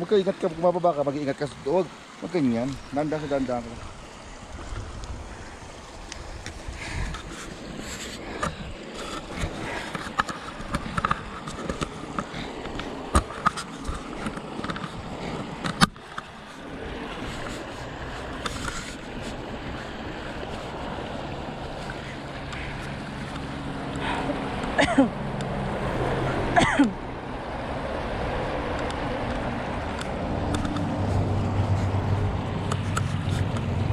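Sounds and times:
creek water rushing: 0:00.0 - 0:33.9.

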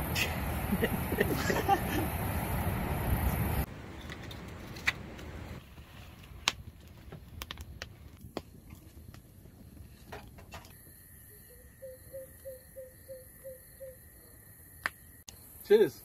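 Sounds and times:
steady rushing noise: 0:00.0 - 0:04.4
wood fire crackling and popping: 0:03.2 - 0:10.8.

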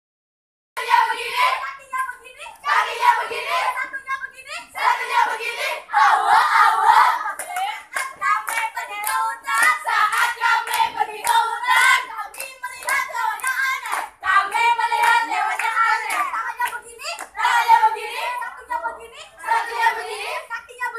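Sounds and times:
girls chanting a cheer: 0:00.8 - 0:20.9
hand claps: 0:07.3 - 0:17.4.

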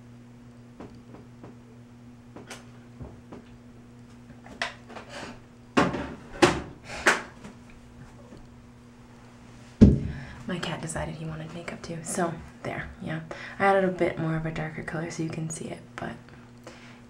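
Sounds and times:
steady low hum: 0:00.0 - 0:17.0.

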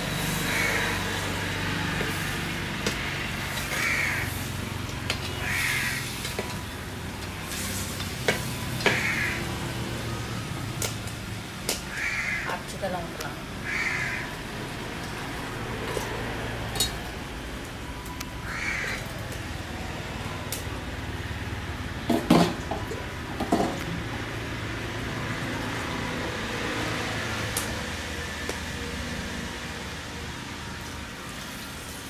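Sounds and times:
crow cawing: 0:00.4 - 0:01.0, 0:03.0 - 0:04.4, 0:05.4 - 0:06.1, 0:08.9 - 0:09.5, 0:11.9 - 0:12.6, 0:13.6 - 0:14.4, 0:18.4 - 0:19.1.

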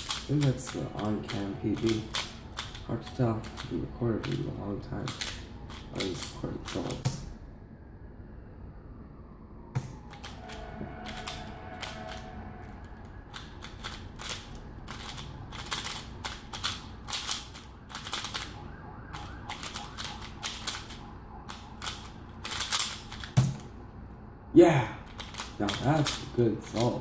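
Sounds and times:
puzzle cube plastic clicking: 0:00.0 - 0:07.2, 0:13.3 - 0:23.7, 0:25.1 - 0:27.0.

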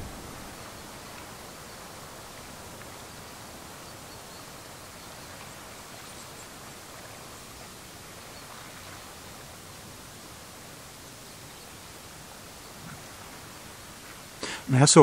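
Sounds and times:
sea on a rocky shore: 0:00.0 - 0:15.0
wind: 0:00.0 - 0:15.0.

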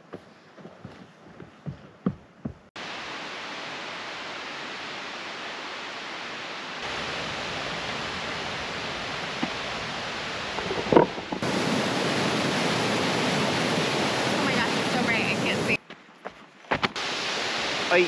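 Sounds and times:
river water rushing over rocks: 0:02.8 - 0:15.8, 0:16.8 - 0:18.0.

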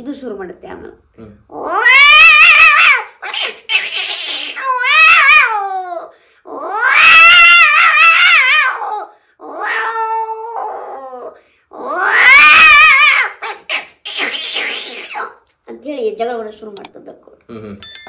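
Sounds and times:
man imitating cat yowls: 0:01.5 - 0:13.5.

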